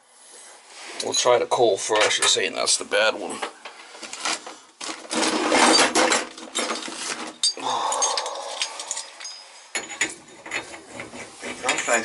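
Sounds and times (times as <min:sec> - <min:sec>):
metal tools clinking: 0:05.6 - 0:12.0
faint metallic ringing: 0:07.4 - 0:10.7.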